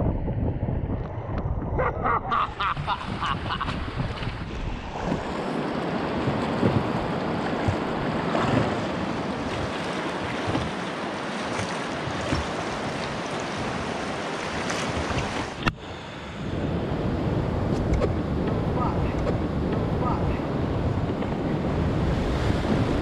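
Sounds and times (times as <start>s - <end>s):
wind buffeting microphone: 0.0s - 23.0s
rushing river water: 2.6s - 16.8s.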